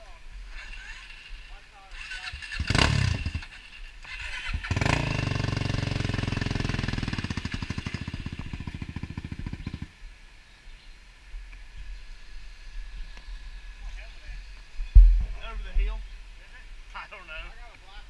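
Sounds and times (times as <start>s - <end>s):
quad bike engine revving: 0.5s - 9.9s.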